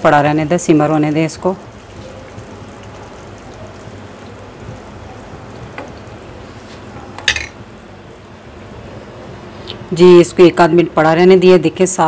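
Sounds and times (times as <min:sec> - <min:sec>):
gravy bubbling in a pan: 0:00.1 - 0:07.1.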